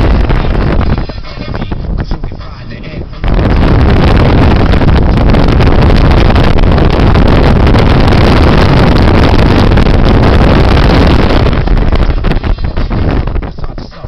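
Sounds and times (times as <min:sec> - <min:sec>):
wind buffeting microphone: 0:00.0 - 0:14.0
car engine and road noise: 0:03.0 - 0:13.5.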